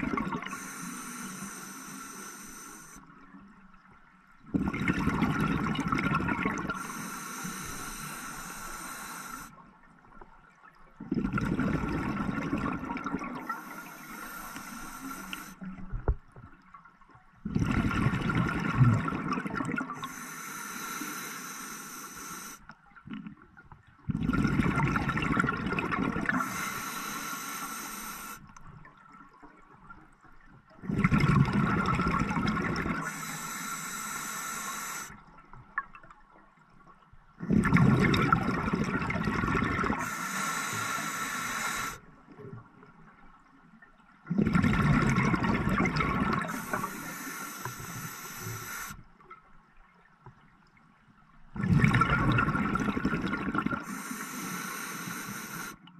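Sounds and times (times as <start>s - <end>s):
diver breathing through regulator: 0.5s - 3.1s, 6.7s - 9.6s, 13.4s - 15.6s, 20.0s - 22.6s, 26.3s - 28.4s, 32.9s - 35.2s, 39.8s - 42.0s, 46.0s - 49.0s, 53.8s - 55.9s.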